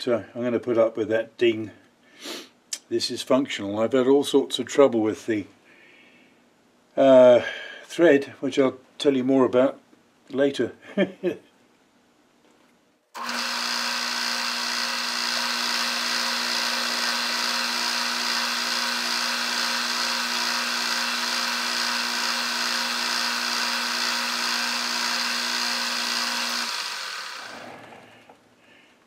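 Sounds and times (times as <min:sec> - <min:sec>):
metal lathe running: 0:13.2 - 0:28.0.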